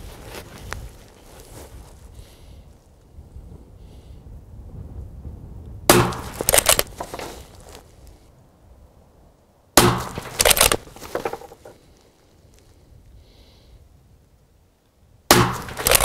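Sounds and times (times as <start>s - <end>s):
rifle bolt clacking: 5.9s - 7.3s, 9.8s - 11.6s, 15.3s - 16.0s
suppressed rifle shots: 5.9s - 7.3s, 9.8s - 11.4s, 15.3s - 16.0s.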